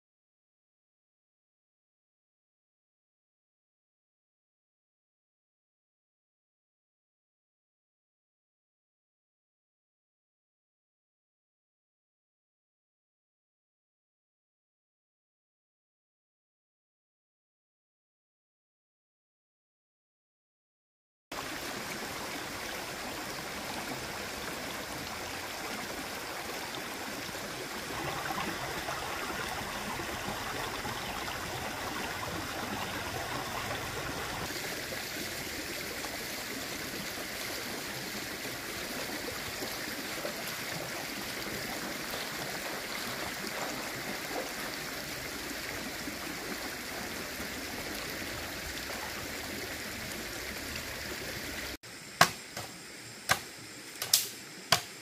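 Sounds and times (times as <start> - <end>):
stream water running: 21.3 - 55.0.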